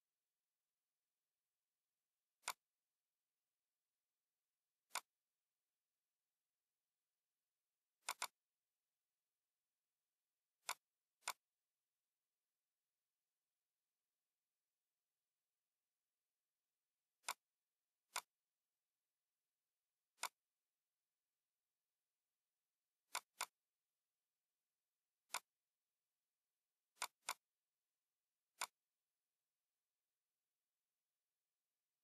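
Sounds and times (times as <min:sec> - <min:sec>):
computer mouse clicks: 0:02.4 - 0:02.7, 0:04.8 - 0:05.2, 0:08.0 - 0:08.4, 0:10.6 - 0:11.5, 0:17.2 - 0:18.4, 0:20.1 - 0:20.5, 0:23.0 - 0:23.7, 0:25.2 - 0:25.6, 0:26.9 - 0:27.6, 0:28.5 - 0:28.9.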